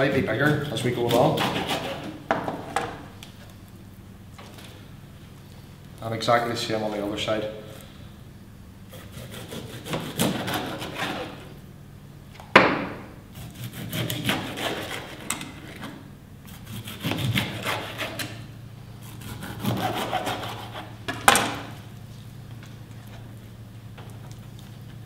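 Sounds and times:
knife sawing through fish: 0.4s - 2.2s, 8.9s - 11.5s, 13.4s - 15.8s, 16.5s - 18.4s, 19.0s - 21.0s
sharp knocks on chopping board: 12.6s - 13.0s.

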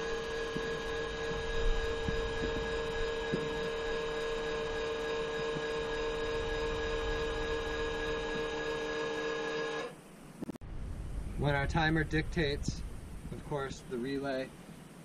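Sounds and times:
electric motor whine: 0.0s - 10.0s.

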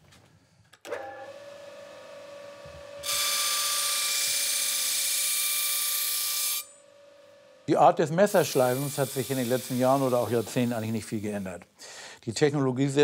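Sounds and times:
polishing machine motor humming: 6.6s - 11.5s
knife blade hissing on wheel: 8.2s - 11.6s.

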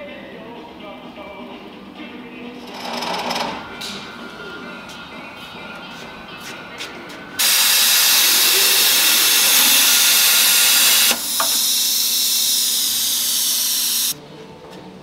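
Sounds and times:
plasma torch cutting hiss: 7.4s - 14.2s.

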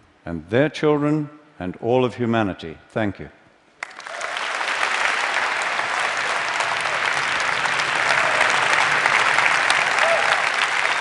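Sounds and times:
audience applauding: 3.8s - 11.0s.

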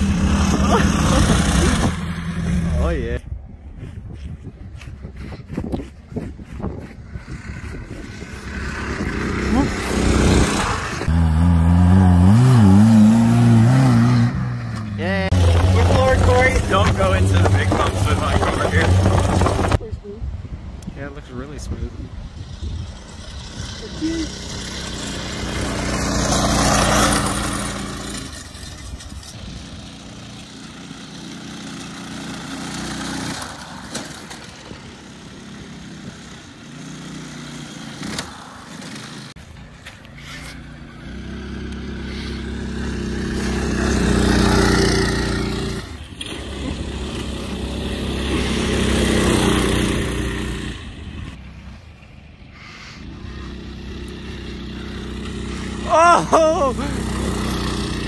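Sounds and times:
minibike engines revving: 0.0s - 3.2s, 6.5s - 19.8s, 22.3s - 51.8s, 52.6s - 58.0s.

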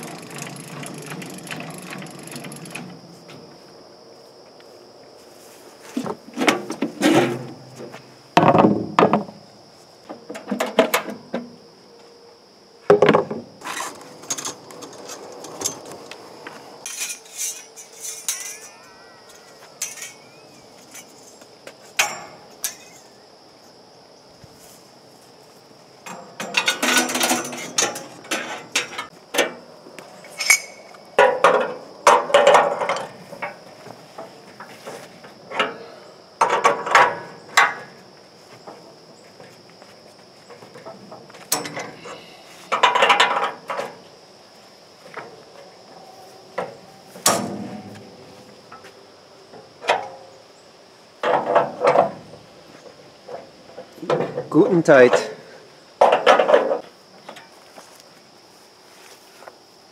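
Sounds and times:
metallic clanks and rattles: 0.0s - 3.4s, 16.8s - 21.4s, 22.0s - 23.1s, 26.0s - 29.6s, 30.3s - 38.0s, 40.4s - 44.0s, 46.6s - 48.8s, 51.2s - 52.3s, 56.0s - 57.5s.

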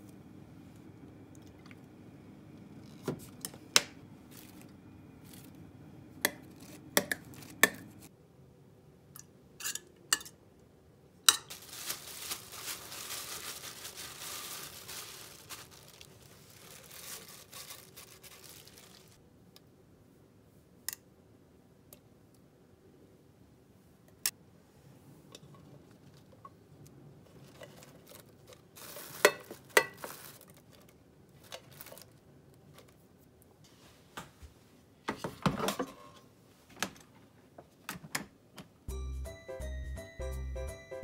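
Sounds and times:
crackly rustling and scraping: 11.5s - 19.2s, 25.4s - 34.1s.

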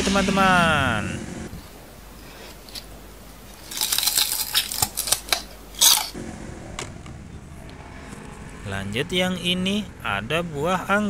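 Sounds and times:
crunchy chewing: 2.2s - 6.2s.

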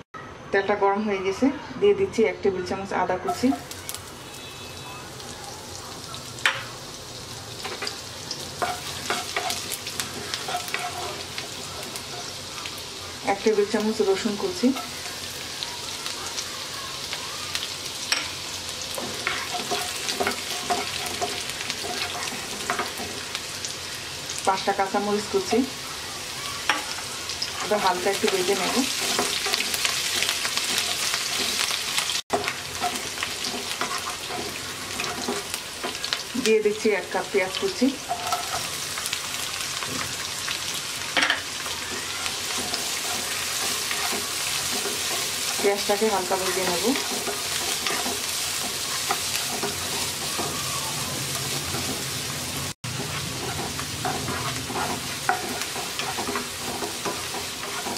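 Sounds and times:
garlic sizzling in hot oil: 2.6s - 57.9s
wooden spoon scraping a pan: 8.6s - 12.4s, 18.9s - 23.3s, 26.7s - 36.2s, 38.0s - 38.8s, 41.9s - 50.6s, 52.9s - 57.9s.

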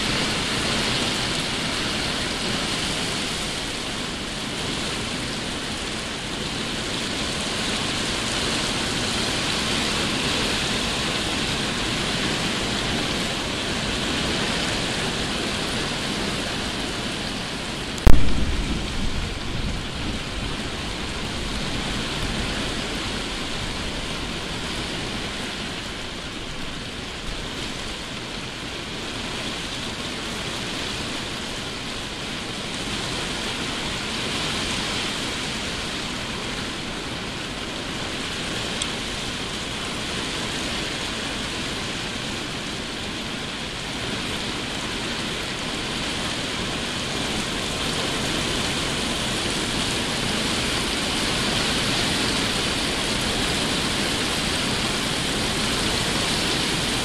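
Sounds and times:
heavy rain pouring: 0.0s - 57.0s
thunderclap rumbling: 18.0s - 24.0s.

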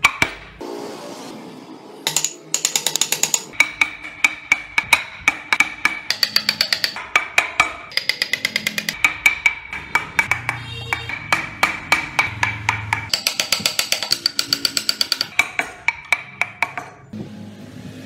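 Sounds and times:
hammer tapping chisel into wood: 2.1s - 17.0s.

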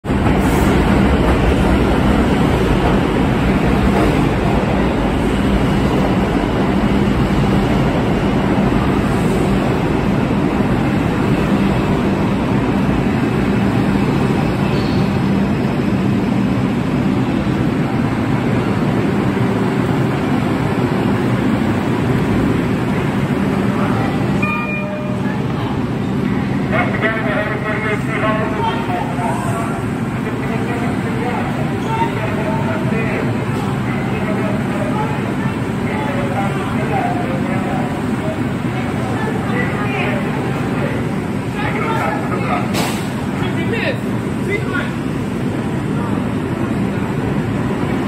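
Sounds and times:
subway train wheels on rails: 0.0s - 48.0s.

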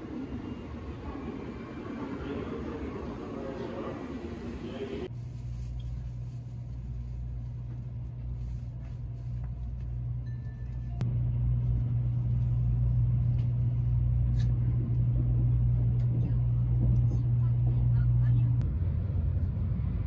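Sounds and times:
vehicle rumble: 5.0s - 20.0s.

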